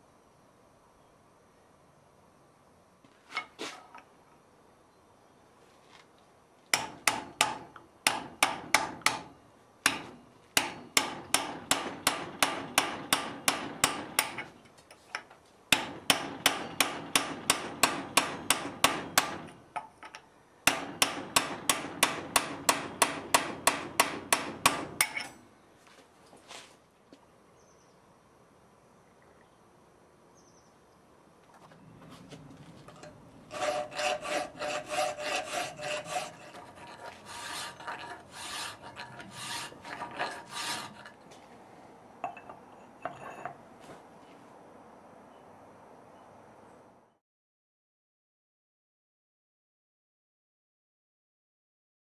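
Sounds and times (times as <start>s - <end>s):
hammer striking chisel on steel: 6.7s - 25.4s, 33.0s - 41.1s.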